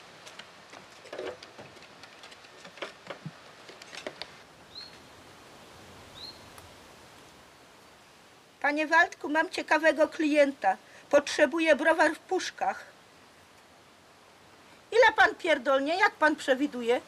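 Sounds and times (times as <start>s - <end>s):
bird chirping: 4.7s - 5.1s, 6.1s - 6.5s.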